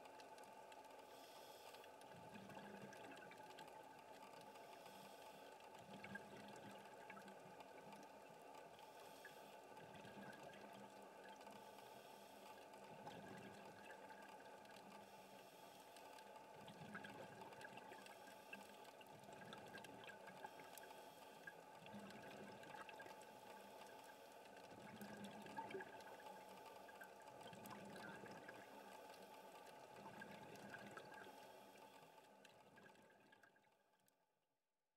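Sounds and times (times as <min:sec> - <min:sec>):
underwater hum: 0:00.3 - 0:33.2
soft bubbling: 0:05.6 - 0:11.5, 0:16.2 - 0:31.5.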